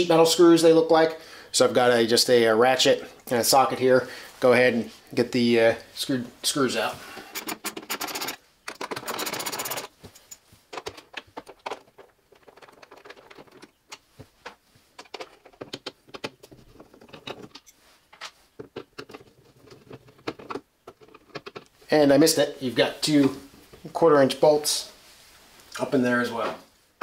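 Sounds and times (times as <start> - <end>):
ratchet clicking rapidly: 7.4 - 9.9.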